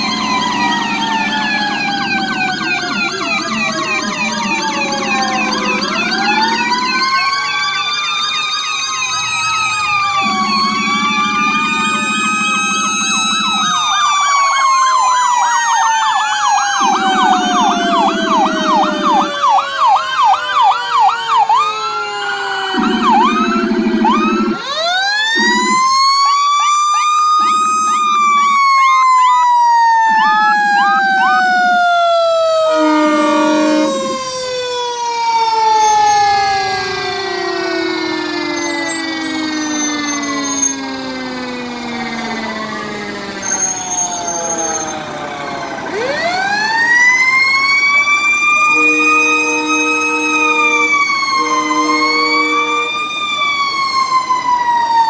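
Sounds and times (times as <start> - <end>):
siren yelping and wailing: 0.0 - 55.0
low horn blasts: 32.4 - 34.3, 48.6 - 53.1.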